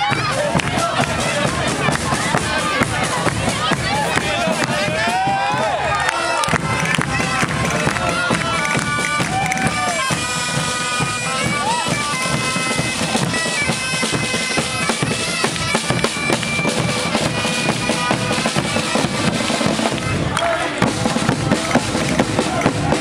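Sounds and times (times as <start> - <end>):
drums beating: 0.0 - 23.0
bagpipes playing a melody: 6.2 - 20.3.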